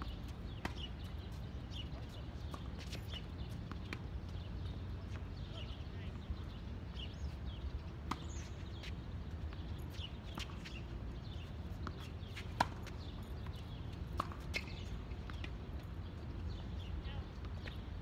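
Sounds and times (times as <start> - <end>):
tennis balls struck and bouncing: 8.0 - 10.8, 11.7 - 15.6.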